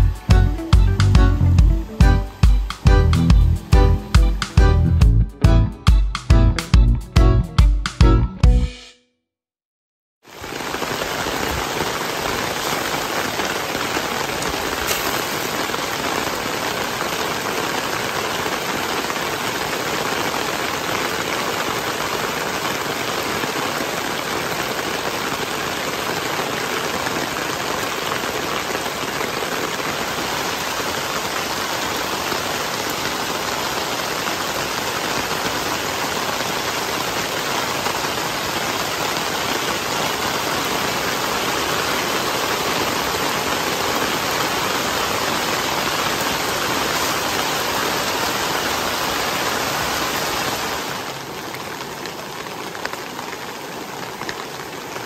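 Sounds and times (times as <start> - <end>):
heavy rain on a tarp: 0.0 - 4.5, 10.2 - 55.0.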